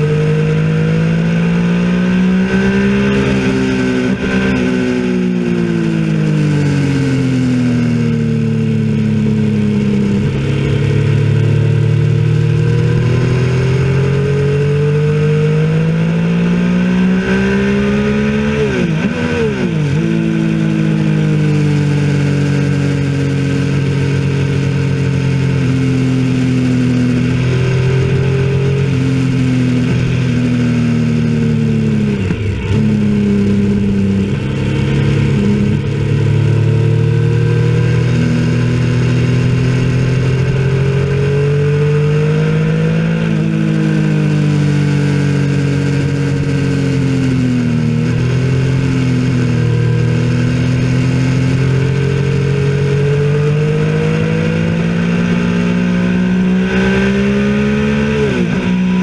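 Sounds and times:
motorcycle engine running hard: 0.0 - 59.0.

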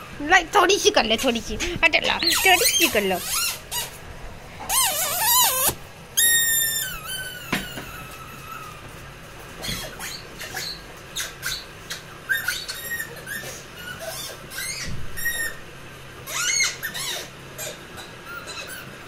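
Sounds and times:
rubber ball squeaking: 2.2 - 4.0, 4.7 - 8.6, 9.6 - 15.6.

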